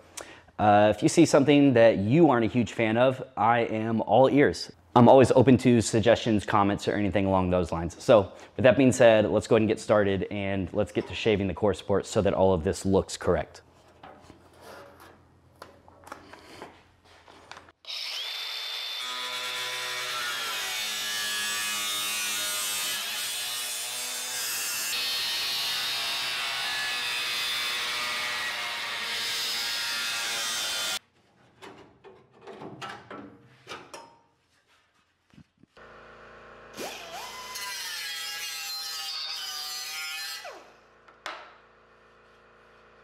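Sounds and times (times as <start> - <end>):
cordless cut-off grinder cutting steel: 17.8 - 31.0, 36.7 - 40.8.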